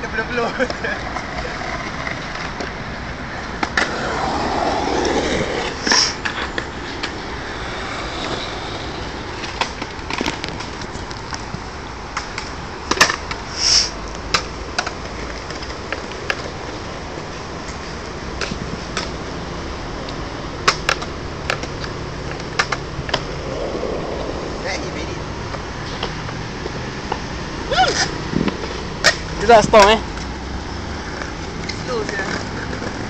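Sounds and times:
skateboard wheels rolling on concrete: 0.0s - 33.0s
skateboard clacking: 0.4s - 13.5s, 14.1s - 17.3s, 20.0s - 24.0s.

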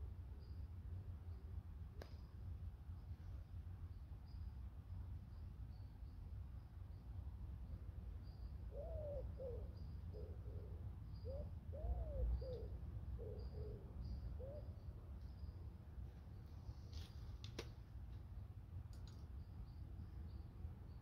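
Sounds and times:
pigeon cooing: 8.7s - 14.7s.

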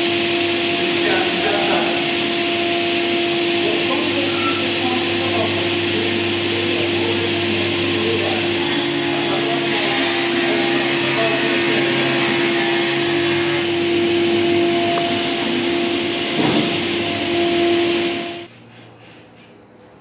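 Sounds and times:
panel saw humming: 0.0s - 18.5s
saw blade cutting chipboard: 5.7s - 14.0s.

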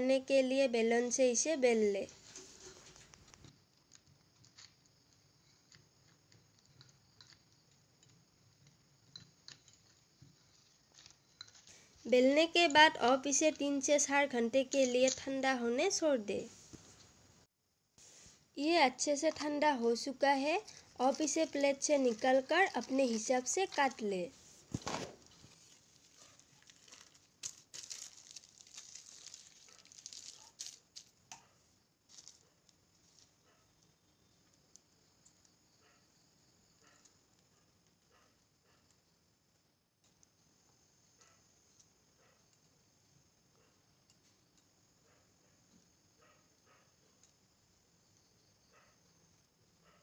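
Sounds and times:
plastic sheet crinkling: 20.4s - 31.4s, 32.1s - 33.4s.

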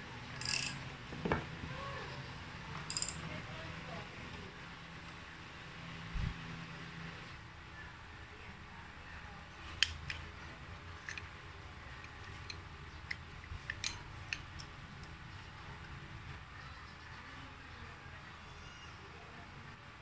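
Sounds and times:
metallic clicks of brake parts: 9.8s - 10.3s, 11.0s - 11.4s, 12.0s - 15.2s.

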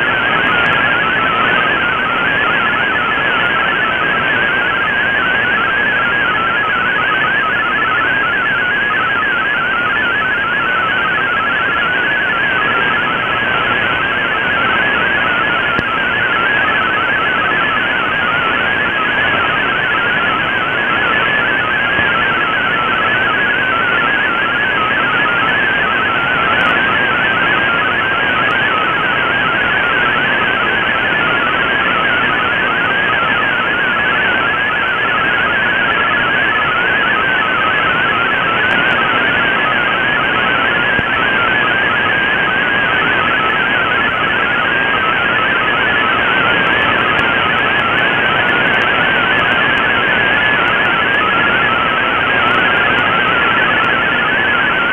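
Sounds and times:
radio band hiss: 35.3s - 54.9s.

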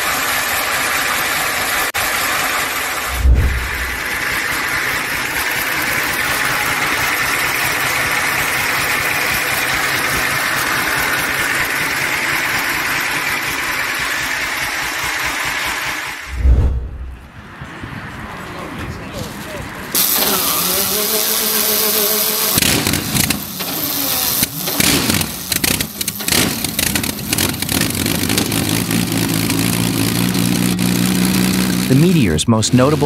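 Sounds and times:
diesel engine running: 0.0s - 17.4s, 19.8s - 33.0s
low thump: 3.1s - 4.1s, 16.3s - 17.3s.

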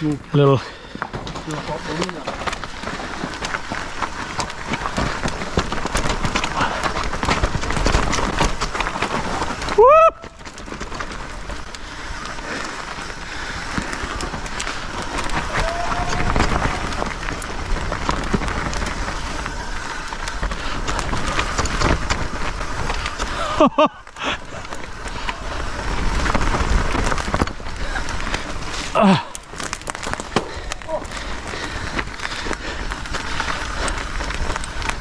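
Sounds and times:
bike clicks and rattles: 0.0s - 35.0s
rider whooping: 9.4s - 10.7s, 15.0s - 17.5s.

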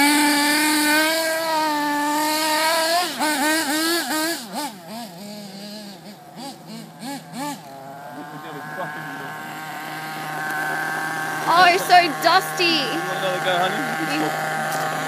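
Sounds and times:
model car nitro engine revving: 0.0s - 15.0s.

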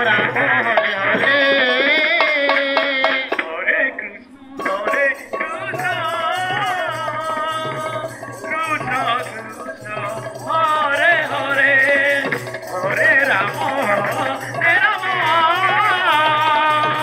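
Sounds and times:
hand drum: 0.0s - 3.6s, 4.5s - 17.0s
high wavering vocal melody with vibrato: 0.0s - 17.0s.

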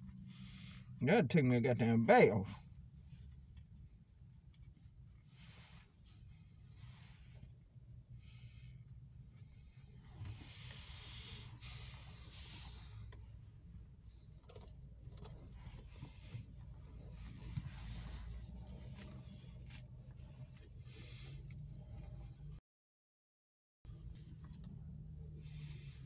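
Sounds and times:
car cabin hum and hiss: 0.0s - 22.6s, 23.9s - 26.0s
faint rustles: 2.6s - 22.5s.

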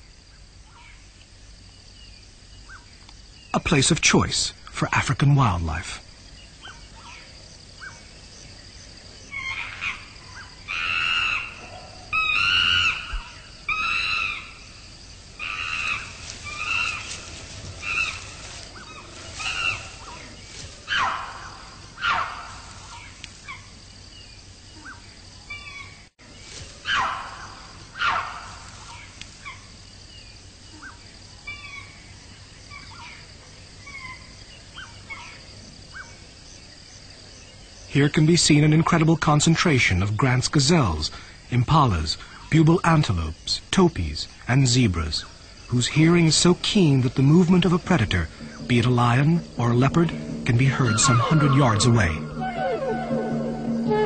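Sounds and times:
high insect drone: 0.0s - 54.0s
short loud animal calls: 15.4s - 20.3s, 50.1s - 54.0s.

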